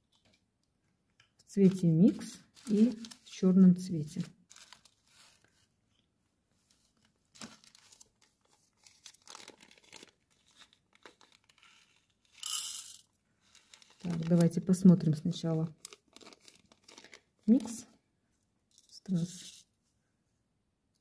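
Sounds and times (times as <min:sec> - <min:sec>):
plastic bag crinkling and rustling: 0:01.7 - 0:03.5, 0:04.1 - 0:05.7, 0:06.7 - 0:12.4, 0:13.4 - 0:18.0.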